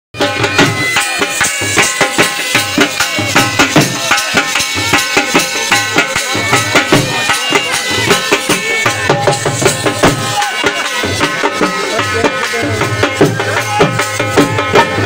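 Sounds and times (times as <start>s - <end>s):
drums beaten with sticks: 0.2s - 15.0s.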